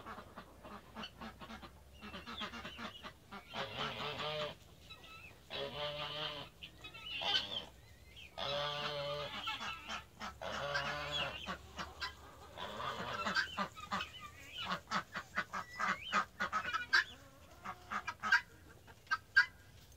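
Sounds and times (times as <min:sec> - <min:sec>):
geese honking: 0:00.0 - 0:19.6.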